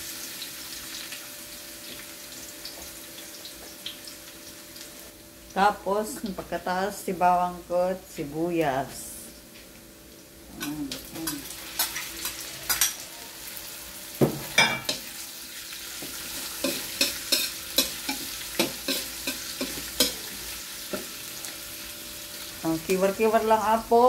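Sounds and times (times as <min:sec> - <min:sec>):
garlic and onion sizzling in oil: 0:00.0 - 0:24.0
metal spoon scraping a pan: 0:11.2 - 0:13.0, 0:16.0 - 0:21.0.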